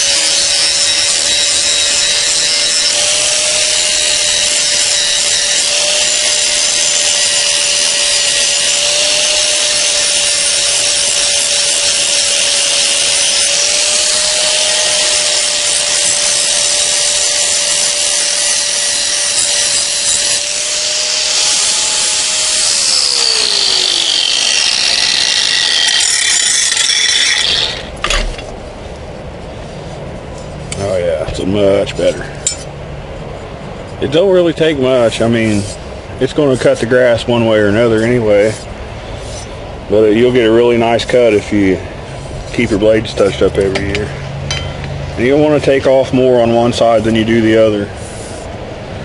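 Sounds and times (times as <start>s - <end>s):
angle grinder grinding metal: 0.0s - 28.6s.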